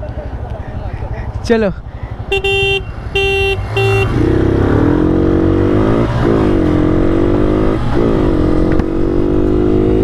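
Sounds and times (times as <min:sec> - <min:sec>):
motorcycle engine revving: 0:02.2 - 0:10.0
motorcycle horn beeps: 0:02.3 - 0:04.3.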